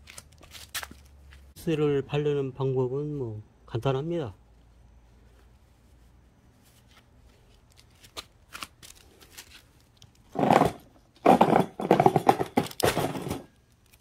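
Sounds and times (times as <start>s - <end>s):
handling rustling and scraping: 4.5s - 14.0s.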